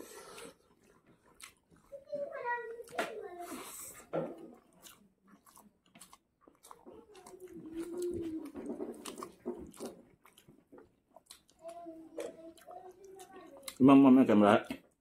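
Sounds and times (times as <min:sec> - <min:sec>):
people chewing noodles: 0:00.0 - 0:15.0.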